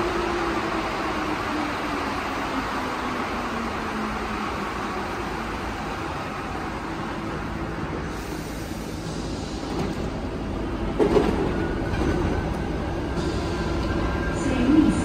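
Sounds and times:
metro train rumbling to a stop: 0:00.0 - 0:15.0
train doors opening clatter: 0:08.9 - 0:14.1.

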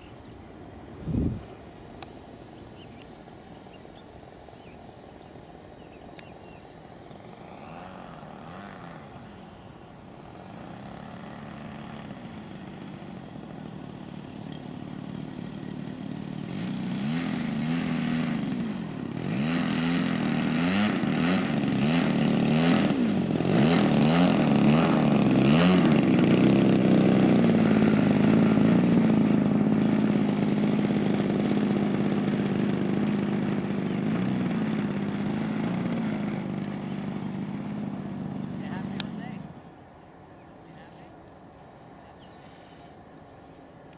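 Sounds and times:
model plane engine revving: 0:07.0 - 0:39.6.

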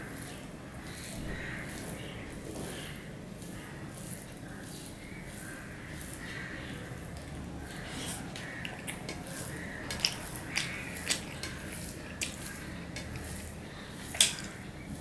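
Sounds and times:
fingers squishing food: 0:04.9 - 0:15.0
fingers clicking on steel plate: 0:08.4 - 0:13.3.

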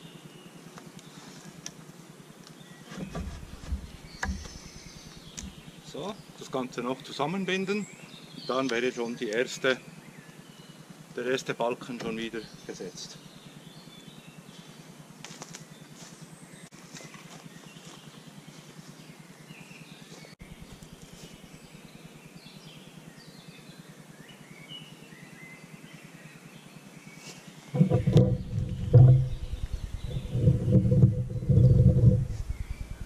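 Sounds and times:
soft rustling: 0:02.9 - 0:05.6.

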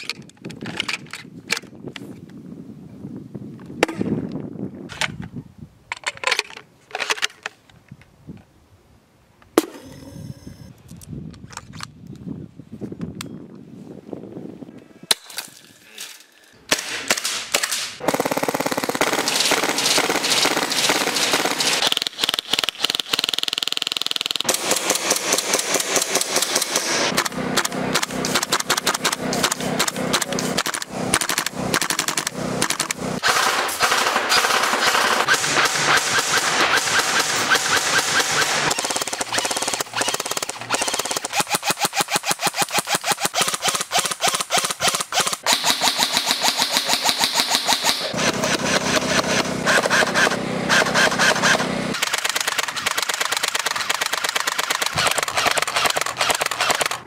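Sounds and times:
airsoft rifles full-auto fire: 0:16.7 - 0:57.0.

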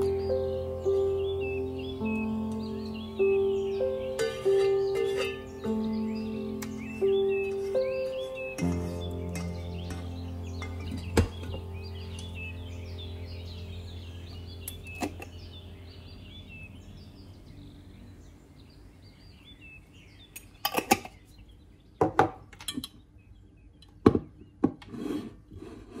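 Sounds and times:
quiet background music: 0:00.0 - 0:24.5
bird-like chirps: 0:00.0 - 0:24.6
glass and ceramic clinks: 0:04.2 - 0:05.8, 0:08.6 - 0:11.6.

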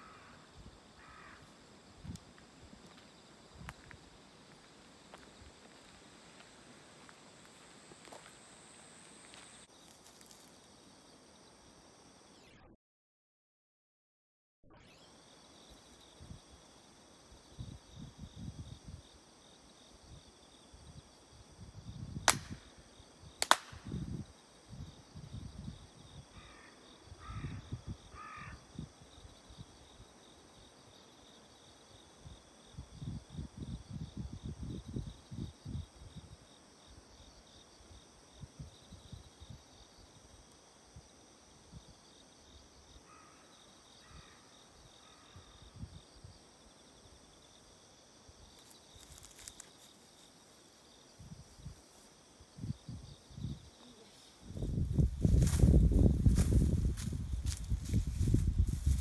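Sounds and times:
crow cawing: 0:00.0 - 0:01.5, 0:26.4 - 0:28.6, 0:43.1 - 0:44.5
sharp handclaps: 0:23.4 - 0:23.8
insects shrilling: 0:48.5 - 0:50.8.

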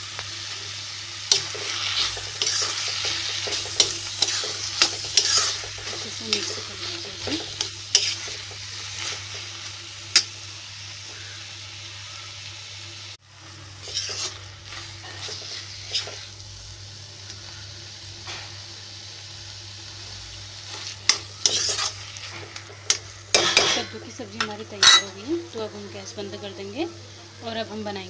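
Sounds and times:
vegetables sizzling in a pan: 0:00.0 - 0:28.0
metal spatula scraping a pan: 0:01.3 - 0:09.5, 0:13.8 - 0:16.4, 0:20.7 - 0:24.0, 0:24.8 - 0:25.2.

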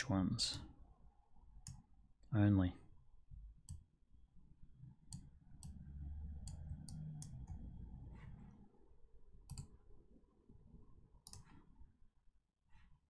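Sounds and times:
faint low rumble: 0:00.7 - 0:13.0
computer mouse clicking: 0:01.6 - 0:01.8, 0:05.1 - 0:05.8, 0:06.4 - 0:08.4, 0:09.4 - 0:09.8, 0:11.2 - 0:11.6.

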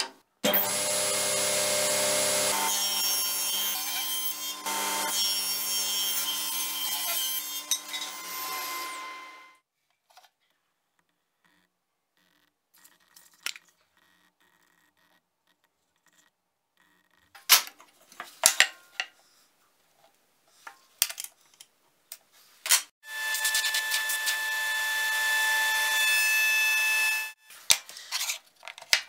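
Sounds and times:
circular saw cutting wood: 0:00.4 - 0:09.6, 0:23.0 - 0:27.4.

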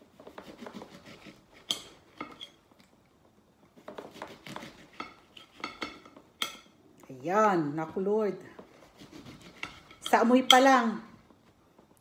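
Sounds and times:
knife cutting on ceramic plate: 0:08.8 - 0:10.0.

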